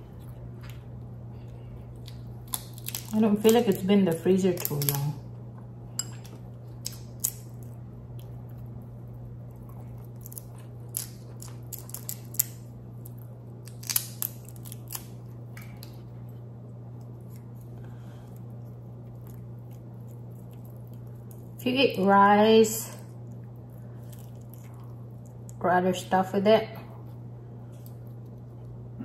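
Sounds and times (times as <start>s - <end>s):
steady low hum: 0.0s - 29.0s
crab shell cracking: 2.0s - 3.9s, 4.5s - 5.2s, 6.8s - 8.8s, 9.8s - 16.0s, 16.9s - 21.6s, 23.2s - 25.6s.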